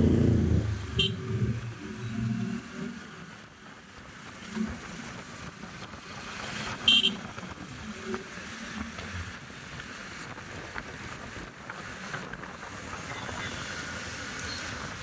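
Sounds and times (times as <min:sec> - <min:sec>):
motorcycle engine: 0:00.0 - 0:03.4
road and wind noise: 0:00.0 - 0:15.0.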